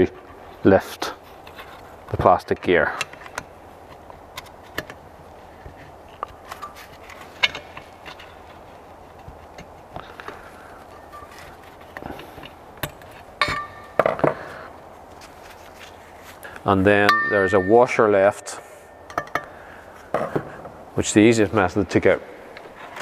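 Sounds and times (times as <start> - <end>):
metallic clinks ringing: 17.0 - 18.0.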